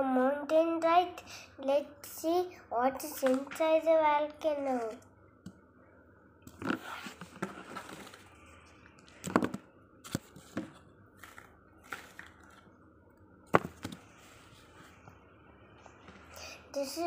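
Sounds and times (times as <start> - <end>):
cardboard scraping rustle: 6.6 - 8.3
cardboard clicks and knocks: 9.2 - 12.6, 13.5 - 14.0.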